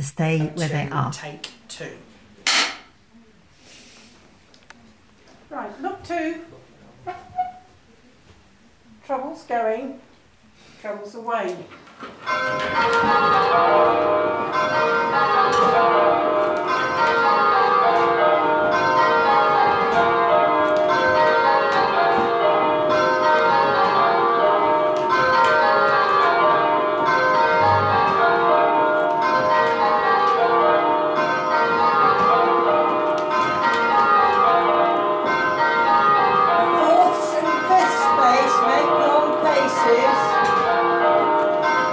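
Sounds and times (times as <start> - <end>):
church bells ringing: 12.2 - 41.9.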